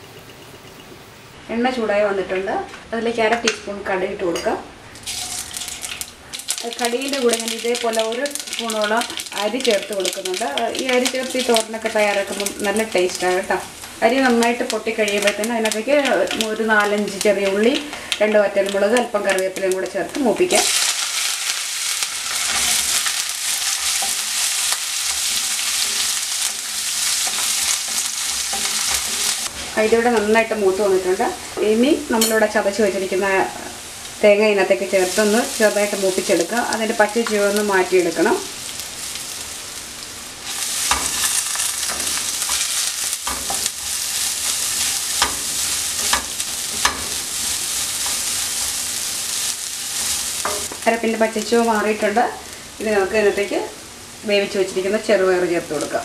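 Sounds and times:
food sizzling in hot oil: 4.9 - 56.0
wooden spatula stirring in pan: 22.3 - 30.4
spatula scraping and tapping pan: 22.4 - 30.3, 40.5 - 49.1.

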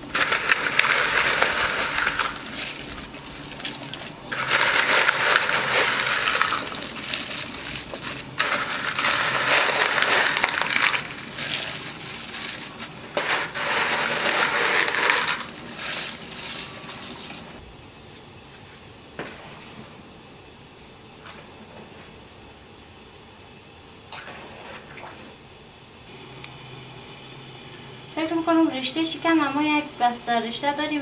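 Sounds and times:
dry noodles rattling into a pot: 0.0 - 17.6.

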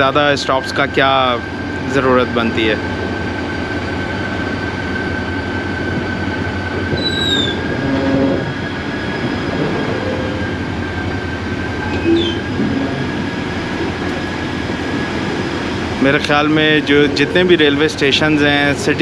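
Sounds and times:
train wheels rumbling on track: 0.0 - 19.0
wheels squealing: 6.9 - 11.1, 11.8 - 13.4.

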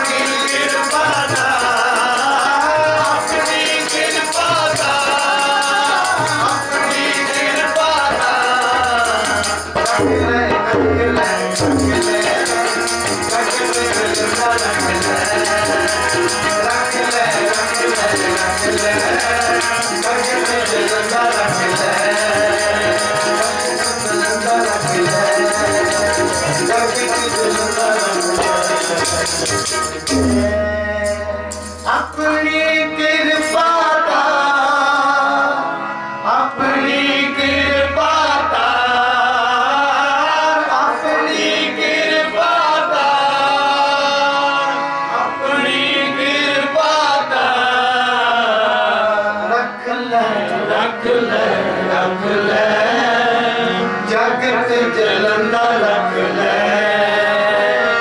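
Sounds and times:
fast tabla drumming: 0.0 - 30.6
rattling percussion: 0.0 - 32.5
harmonium: 0.0 - 58.0
men singing: 0.0 - 58.0.

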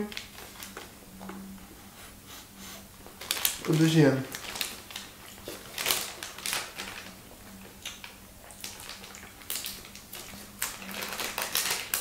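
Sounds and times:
plastic packet rustling: 0.0 - 0.9, 3.1 - 12.0
person sniffing: 1.9 - 2.9.

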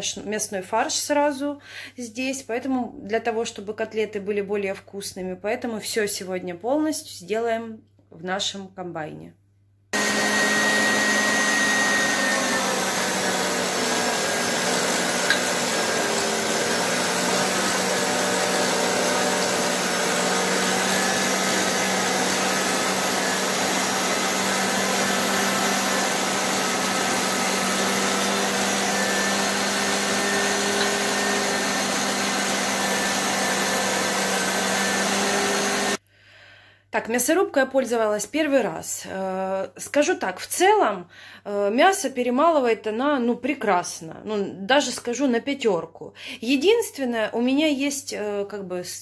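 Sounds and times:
meat grinder motor humming: 10.0 - 36.0.

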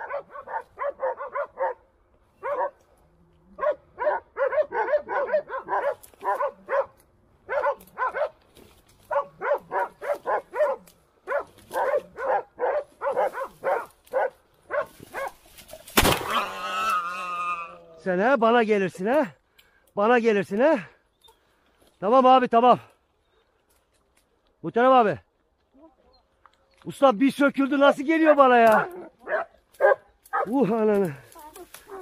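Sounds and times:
dogs barking: 0.0 - 2.8, 3.5 - 8.4, 9.0 - 15.5, 28.7 - 30.6, 31.8 - 32.0
shotgun shot: 15.9 - 16.4.

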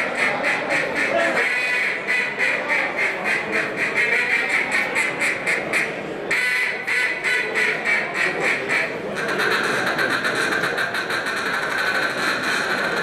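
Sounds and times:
duck call quacking: 0.0 - 13.0.

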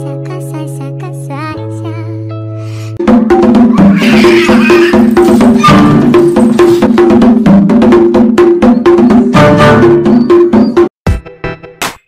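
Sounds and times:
music with clicky percussion beat: 3.0 - 12.0.

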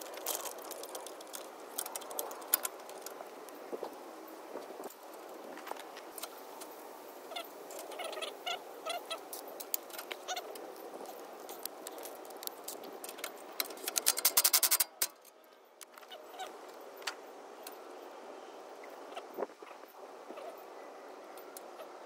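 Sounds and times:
rapid sharp tool clicks: 13.6 - 15.1.

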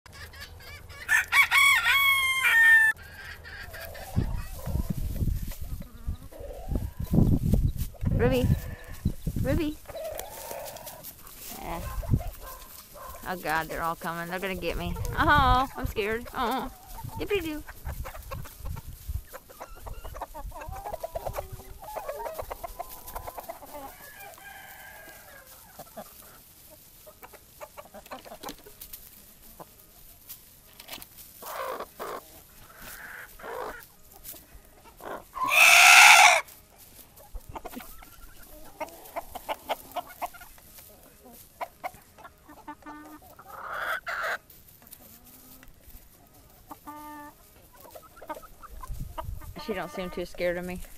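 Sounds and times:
chickens clucking: 0.0 - 50.9
loud chicken call: 0.1 - 4.9, 35.0 - 36.5.

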